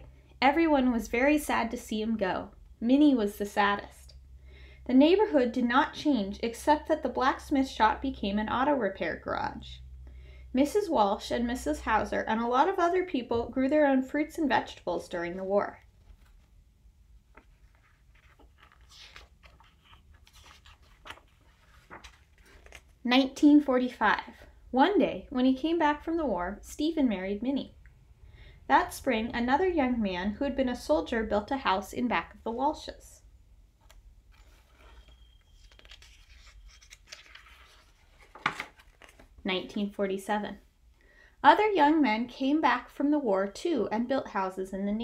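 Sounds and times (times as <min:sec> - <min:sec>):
paper rustling: 0:15.9 - 0:16.6, 0:17.2 - 0:23.0, 0:33.8 - 0:39.4
book pages clicking: 0:33.8 - 0:39.2.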